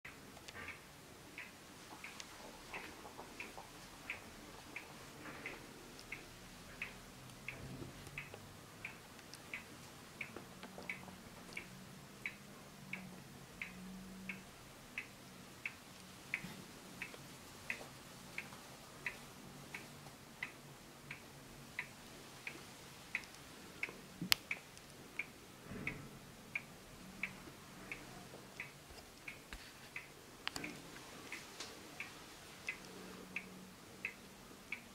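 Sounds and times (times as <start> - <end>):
clock ticking: 0.1 - 34.9.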